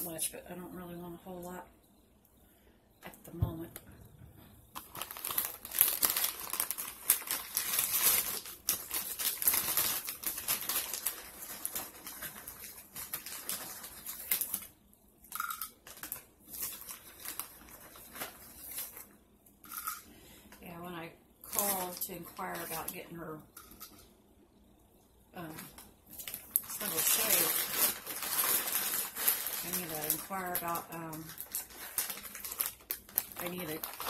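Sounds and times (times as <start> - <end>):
crunchy snack crackling: 4.7 - 14.7, 25.4 - 34.0.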